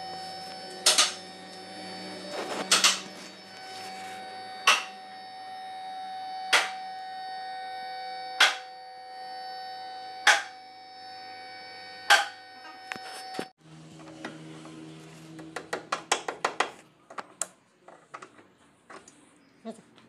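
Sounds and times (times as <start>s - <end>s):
sustained electronic tones: 0.0s - 15.7s
sharp percussive hit: 4.7s - 5.0s, 6.5s - 6.8s, 8.4s - 8.7s, 10.3s - 10.6s.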